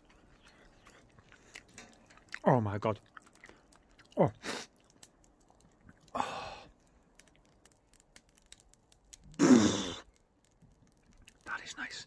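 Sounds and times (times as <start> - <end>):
man sighing: 6.1 - 6.7, 9.4 - 10.0.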